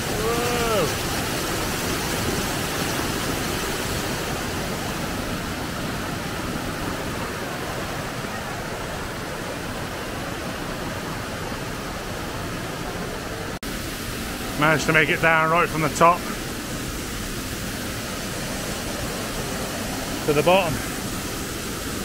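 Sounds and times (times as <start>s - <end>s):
waterfall rushing and splashing: 0.0s - 22.0s.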